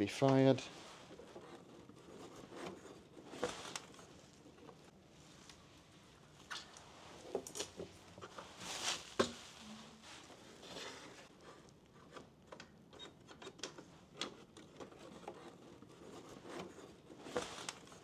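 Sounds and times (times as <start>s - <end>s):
plastic rustling: 6.5s - 11.3s.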